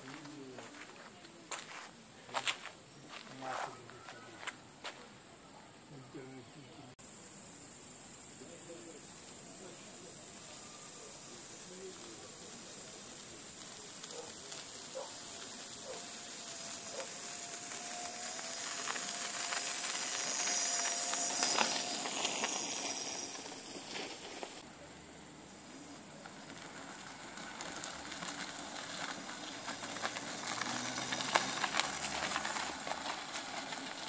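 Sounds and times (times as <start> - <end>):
clicks and crunches from road: 0.0 - 5.4, 10.0 - 24.8, 25.4 - 34.0
tyre noise: 12.7 - 24.6, 25.7 - 34.0
electric scooter motor whine: 13.6 - 24.6, 26.5 - 34.0.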